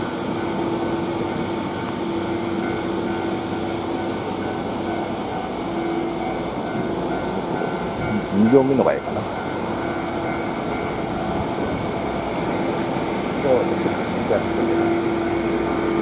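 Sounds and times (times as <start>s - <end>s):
railcar cooling unit drone: 0.0s - 16.0s.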